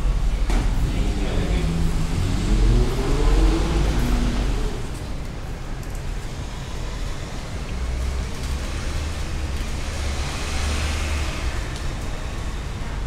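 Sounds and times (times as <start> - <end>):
vehicle passing with low rumble: 0.7 - 5.2.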